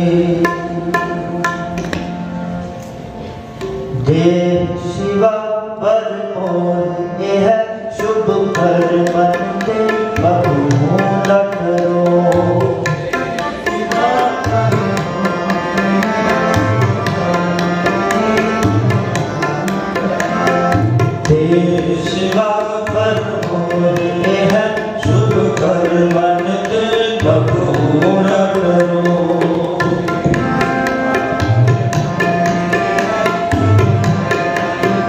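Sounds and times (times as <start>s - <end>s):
drum strokes: 27.2s - 35.0s.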